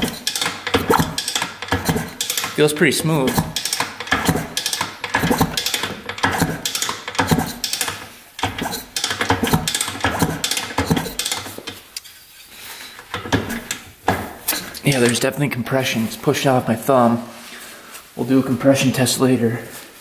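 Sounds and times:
motorcycle engine kickstart clanking: 0.0 - 11.8.

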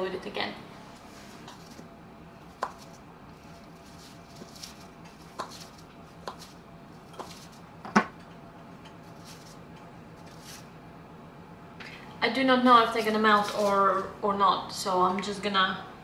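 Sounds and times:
knife slicing cookie dough: 2.5 - 3.0, 3.8 - 7.6.

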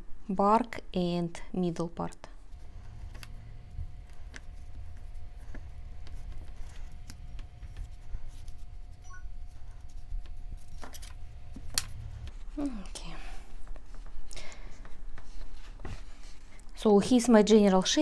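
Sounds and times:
steady low hum: 0.0 - 18.0
hands shaping clay: 2.5 - 14.2.

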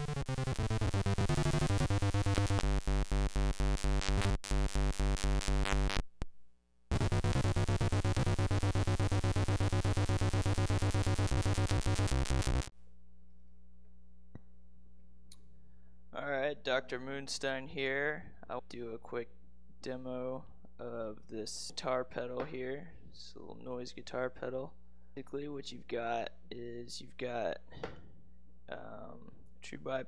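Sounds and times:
electric guitar through noise pedal: 6.9 - 12.7.

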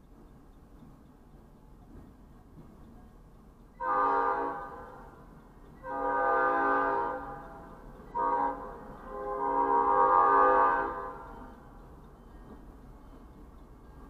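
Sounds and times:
locomotive air horn blasts: 3.8 - 4.8, 5.8 - 7.4, 8.2 - 11.2.

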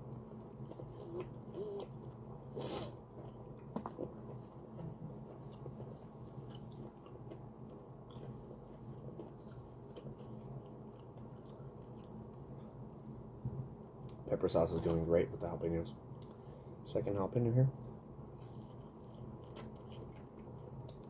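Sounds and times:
close-up chewing with crunches: 0.0 - 13.3, 17.7 - 21.0
steady low hum: 0.0 - 21.0.

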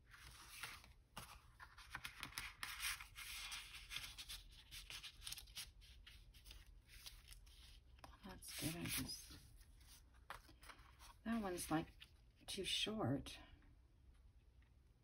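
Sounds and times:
paper rustling and scraping: 0.0 - 11.4.

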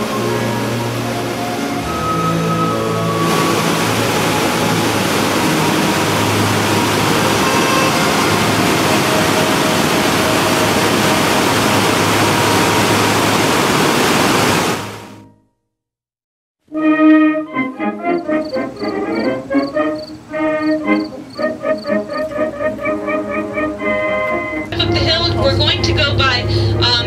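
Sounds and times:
water rushing down spillway: 0.0 - 15.1.

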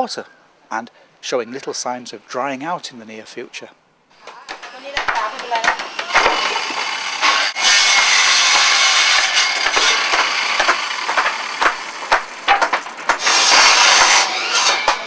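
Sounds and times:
wood knocking: 4.2 - 14.2
circular saw cutting wood: 4.5 - 15.0.

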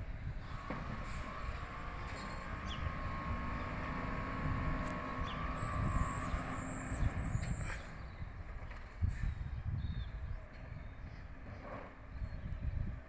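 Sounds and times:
truck engine rumbling: 0.0 - 9.3.

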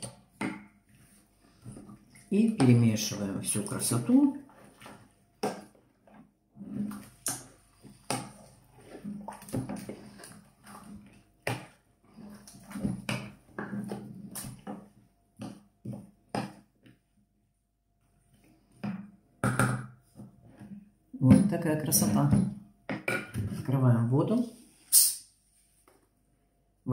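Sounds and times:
wet sloshing: 0.7 - 14.9.

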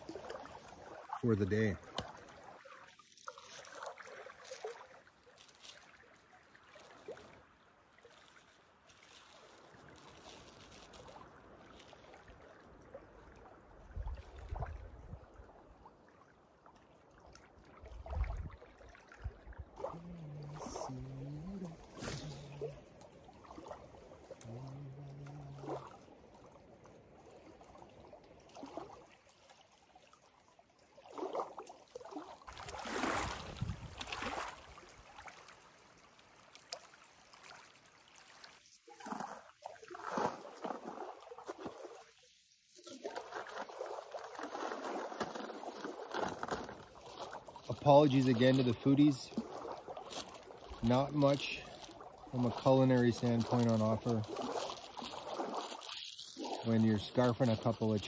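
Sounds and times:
small waves lapping on rocks: 0.0 - 58.0
wind thumps on microphone: 33.3 - 34.1.

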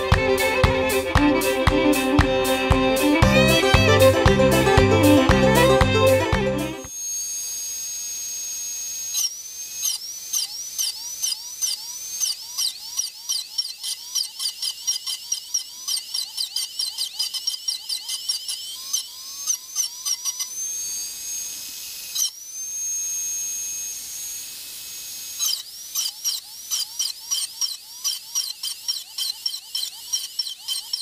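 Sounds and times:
drill bur tapping metal: 0.0 - 5.6, 9.2 - 20.9, 25.3 - 31.0
dental drill whining: 0.0 - 31.0.

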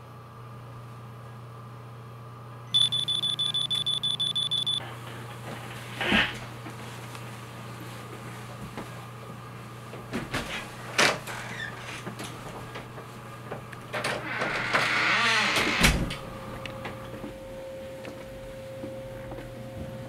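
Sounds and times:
low hum: 2.8 - 4.8
steady tone: 2.8 - 4.8.

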